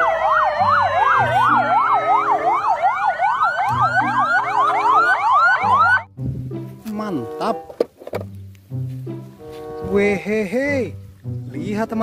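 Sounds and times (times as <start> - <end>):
ambulance sirens: 0.0 - 6.1.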